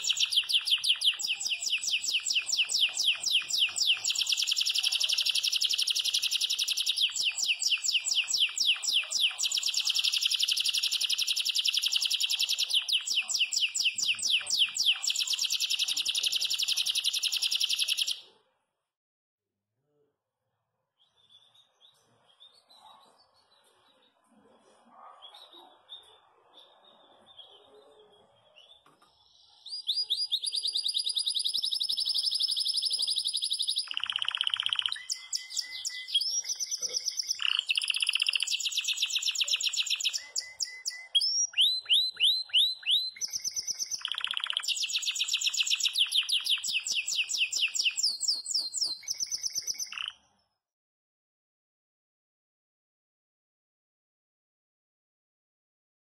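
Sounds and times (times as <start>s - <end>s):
canary singing trills: 0.0s - 18.3s, 24.9s - 50.3s.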